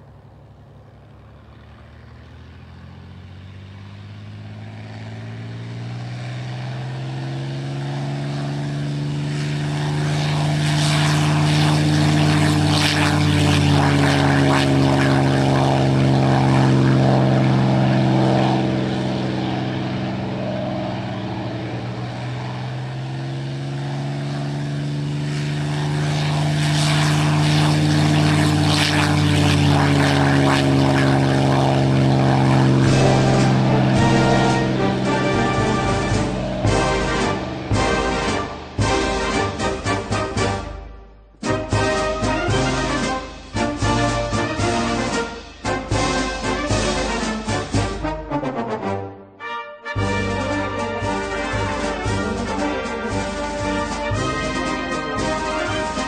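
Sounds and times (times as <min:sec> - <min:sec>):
propeller aircraft engine drone: 0:00.0 - 0:56.0.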